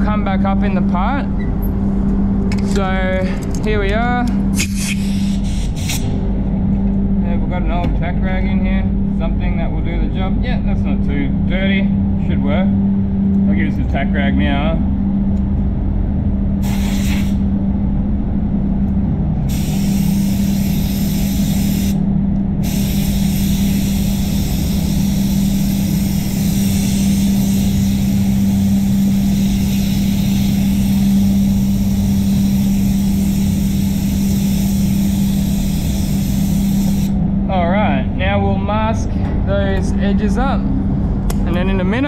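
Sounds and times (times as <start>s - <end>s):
spray booth fans humming: 0.0s - 42.0s
high hiss: 16.6s - 17.4s.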